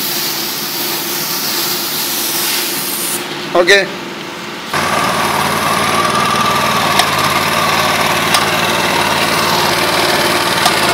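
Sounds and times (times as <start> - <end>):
paint sprayer pump running: 4.7 - 10.9.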